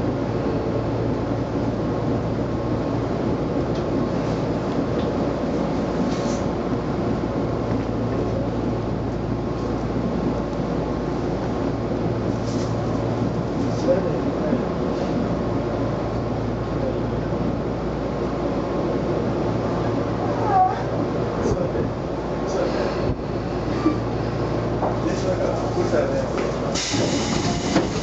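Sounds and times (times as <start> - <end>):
train rumbling on rails: 0.0 - 28.0.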